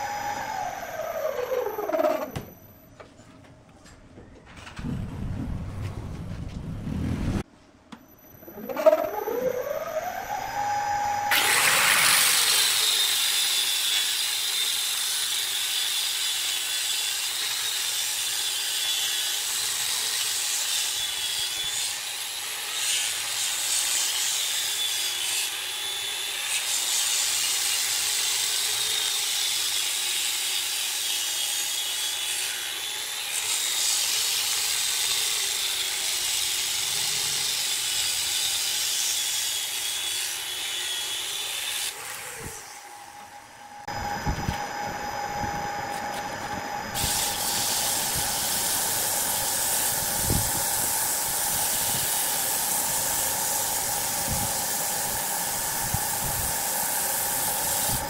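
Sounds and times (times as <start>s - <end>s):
motor whine winding up: 0.0s - 2.8s, 8.0s - 13.2s, 41.9s - 58.0s
angle grinder sanding wood: 11.3s - 22.1s, 47.0s - 58.0s.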